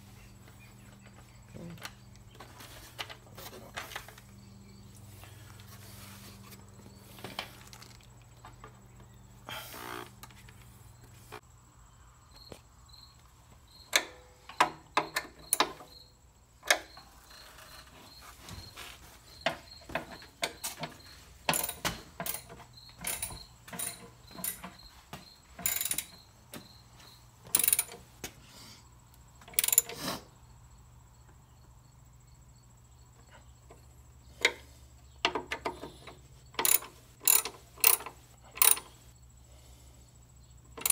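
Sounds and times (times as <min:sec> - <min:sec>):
tools and parts knocking and rattling: 0:13.8 - 0:16.0, 0:16.6 - 0:28.3, 0:29.4 - 0:30.0, 0:33.6 - 0:39.0, 0:40.7 - 0:40.9.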